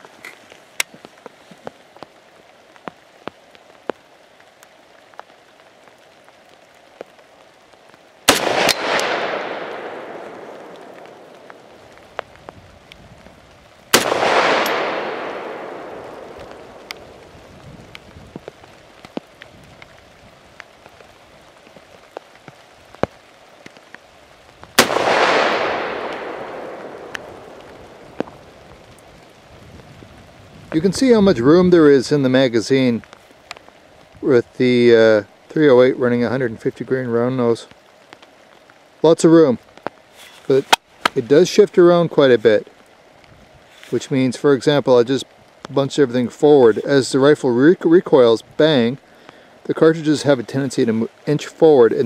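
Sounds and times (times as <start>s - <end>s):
rain ticking: 0.0s - 52.0s
rifle shots with echo: 8.3s - 11.9s, 13.9s - 17.3s, 24.8s - 28.4s.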